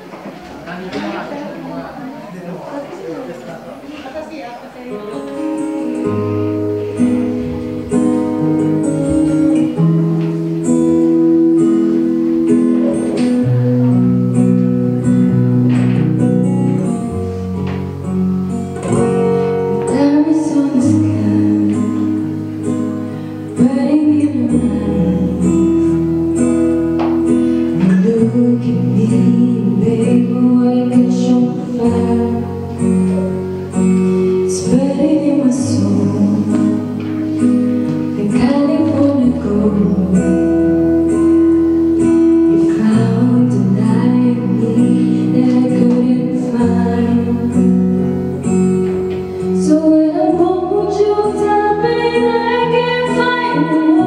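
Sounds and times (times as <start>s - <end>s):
plucked acoustic guitar: 4.9s - 54.0s
person singing: 18.8s - 48.2s, 49.4s - 54.0s.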